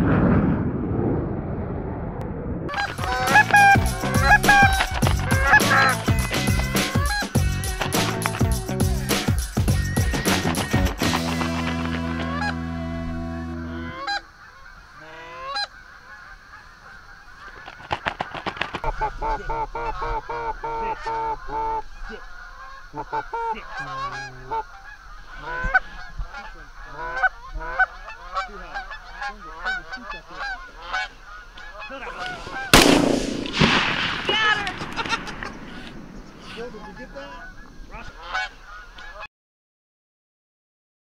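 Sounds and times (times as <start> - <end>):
geese honking: 2.7 - 39.3
background music: 2.8 - 13.9.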